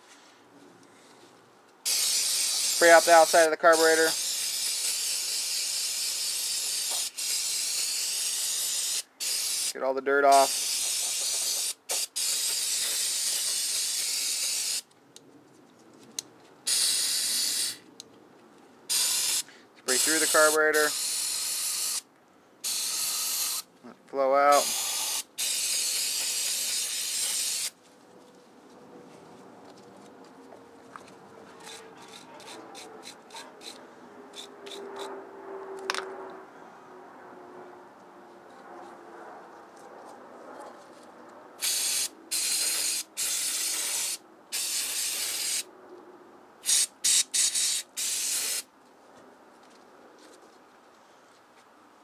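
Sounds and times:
aerosol spray hissing: 0:01.9 - 0:14.8, 0:16.7 - 0:17.8, 0:18.9 - 0:22.0, 0:22.6 - 0:23.6, 0:24.5 - 0:27.7, 0:41.6 - 0:45.6, 0:46.6 - 0:48.6.

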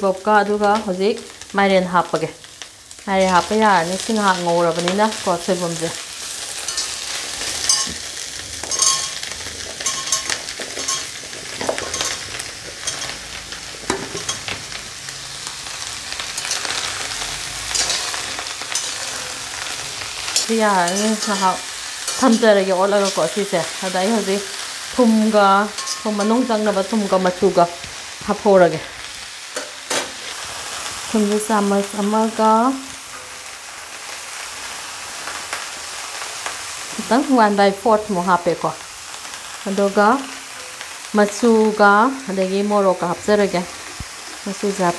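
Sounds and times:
vegetables sizzling in oil: 0:00.0 - 0:44.9
steel spoon scraping wok: 0:06.2 - 0:28.1
person speaking: 0:20.5 - 0:28.8.

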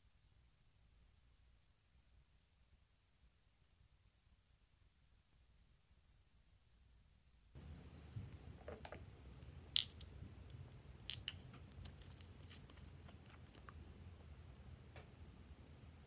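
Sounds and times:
plastic bottle cap clicks: 0:09.8 - 0:10.1, 0:11.1 - 0:11.5.

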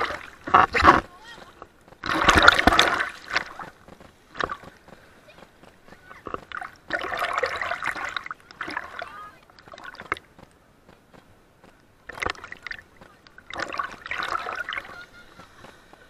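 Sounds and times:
seawater splashing: 0:00.0 - 0:10.5, 0:12.0 - 0:16.0
water dripping: 0:12.1 - 0:15.0.

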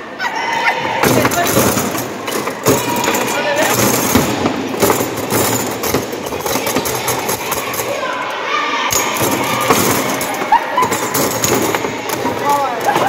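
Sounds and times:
people talking: 0:00.3 - 0:02.0, 0:02.6 - 0:04.3, 0:06.3 - 0:13.0
foosball rods rattling: 0:01.0 - 0:08.1, 0:08.9 - 0:13.0.

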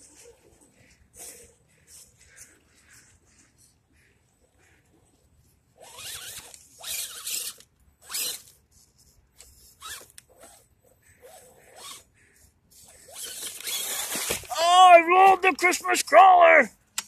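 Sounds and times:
rc car electric motor whirring: 0:05.8 - 0:08.6, 0:09.4 - 0:10.6, 0:11.2 - 0:12.1, 0:12.7 - 0:14.5.

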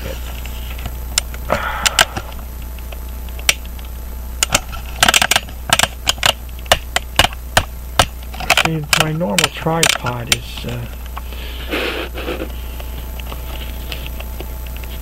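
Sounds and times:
steady low hum: 0:00.0 - 0:15.0
tripod clicks and knocks: 0:04.4 - 0:10.4.

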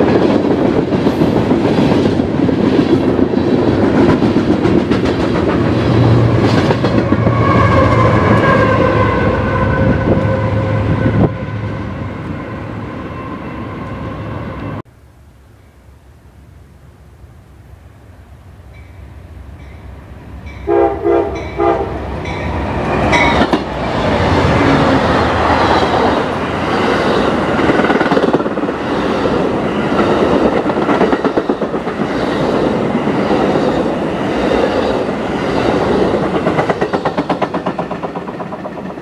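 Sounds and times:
train rumbling past: 0:00.0 - 0:14.9, 0:15.6 - 0:39.0
train horn blasts: 0:07.0 - 0:14.8, 0:20.6 - 0:22.5.

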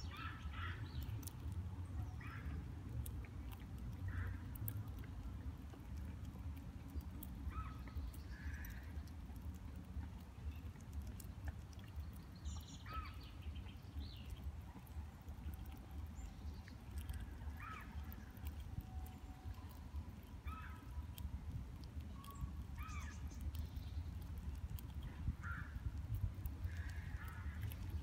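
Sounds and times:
bird calls: 0:07.5 - 0:09.0, 0:11.8 - 0:14.4.

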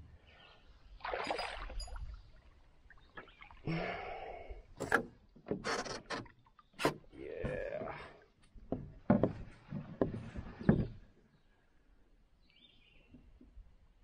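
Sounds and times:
hard knocks against canoe: 0:08.6 - 0:11.0.

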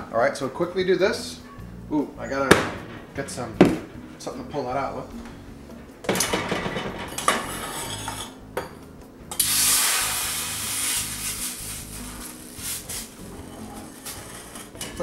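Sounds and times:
water hissing in hot bowl: 0:09.4 - 0:14.5.

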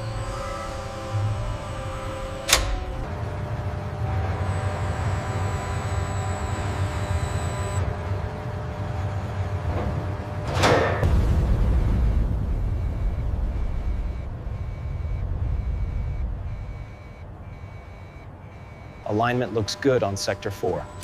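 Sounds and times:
faint steady tones: 0:00.0 - 0:07.9, 0:11.6 - 0:21.0
factory machinery hum: 0:00.0 - 0:21.0
deep rumble: 0:11.0 - 0:19.3.

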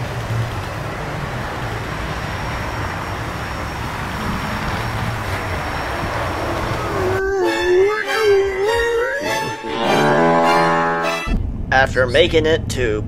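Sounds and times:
low hum: 0:09.6 - 0:11.7.

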